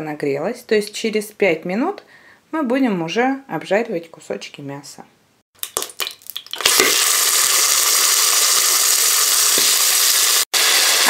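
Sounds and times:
meat sizzling in hot oil: 0:05.6 - 0:11.0.

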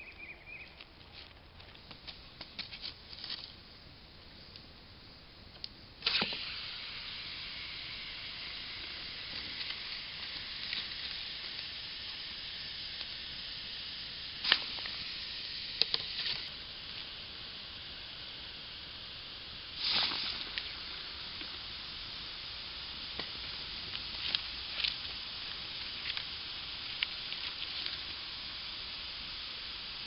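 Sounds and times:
water hissing and sizzling: 0:05.9 - 0:30.0
splash and hiss: 0:06.0 - 0:30.0.

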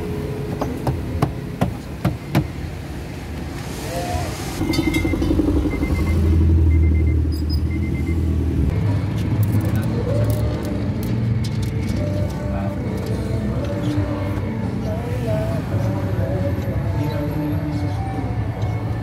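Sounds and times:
car chime beeping: 0:04.6 - 0:08.2.

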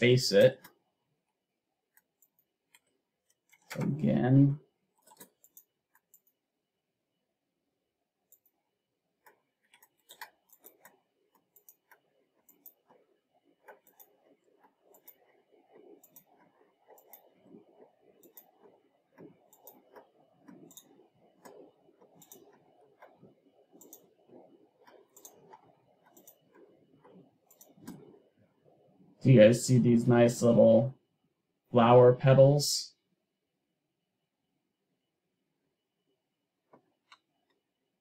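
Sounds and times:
faint low background noise: 0:00.0 - 0:38.0
computer mouse clicks: 0:01.9 - 0:04.0, 0:05.0 - 0:06.4, 0:08.3 - 0:08.6, 0:09.2 - 0:28.8, 0:36.7 - 0:37.6.

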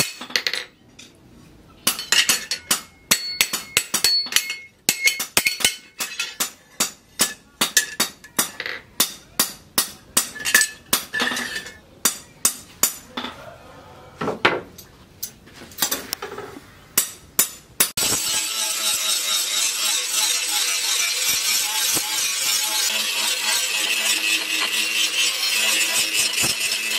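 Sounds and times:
hammer on metal blade: 0:01.9 - 0:13.0, 0:20.2 - 0:26.9
angle grinder grinding steel: 0:18.0 - 0:26.9.

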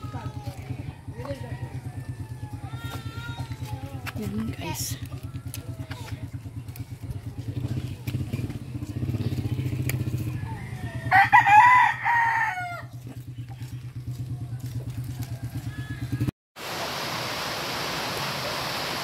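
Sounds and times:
rooster crowing: 0:00.8 - 0:03.2, 0:10.3 - 0:13.0, 0:14.9 - 0:16.3
low pulsing motor hum: 0:12.8 - 0:16.3.

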